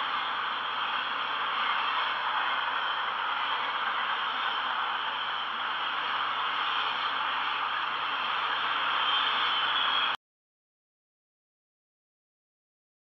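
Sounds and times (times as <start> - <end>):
faint high whine: 0.0 - 10.2
static-like hiss: 0.0 - 10.2.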